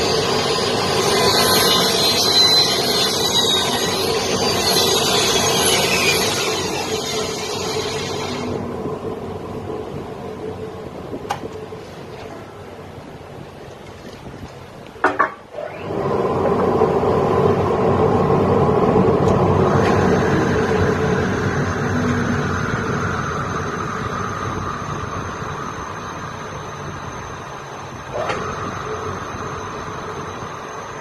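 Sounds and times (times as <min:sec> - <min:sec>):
circular saw cutting wood: 0:00.0 - 0:08.6
thin high whine: 0:00.0 - 0:11.0, 0:15.5 - 0:31.0.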